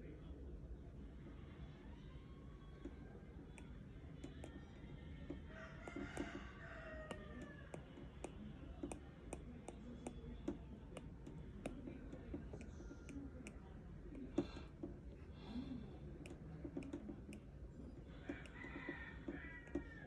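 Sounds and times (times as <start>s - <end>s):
faint background noise: 0.0s - 20.0s
stylus tapping on glass screen: 5.3s - 15.0s.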